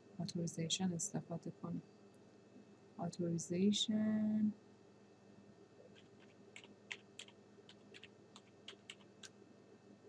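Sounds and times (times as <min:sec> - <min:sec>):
typing on computer keyboard: 0:06.0 - 0:09.4.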